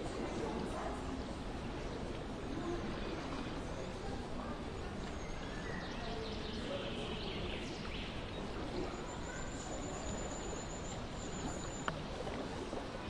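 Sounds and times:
murmur of distant voices: 0.0s - 13.0s.

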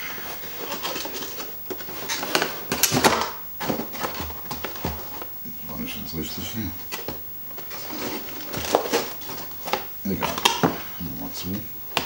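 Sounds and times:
cardboard scraping and rustling: 0.0s - 5.3s, 6.3s - 10.5s.

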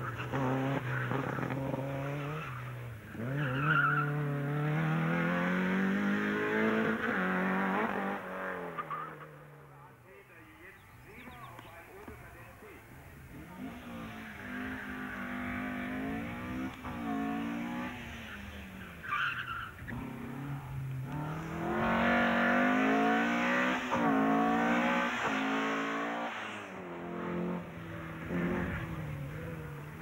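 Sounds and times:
race car engine revving: 0.0s - 9.4s, 12.0s - 30.0s
tyre squeal: 3.3s - 4.2s, 19.0s - 20.1s.

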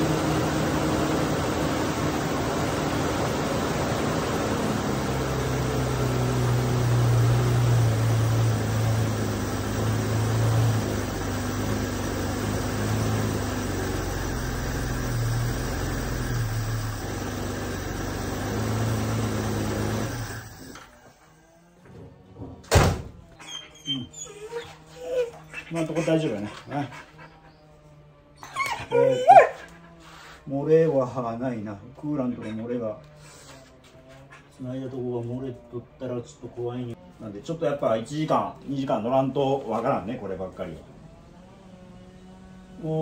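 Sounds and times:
car engine idling: 0.0s - 20.7s
thud: 21.9s - 23.2s.

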